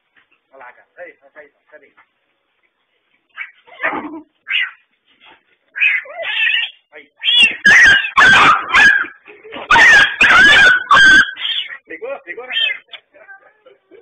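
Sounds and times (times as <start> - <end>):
cat and dog fighting cries: 3.3 - 14.0.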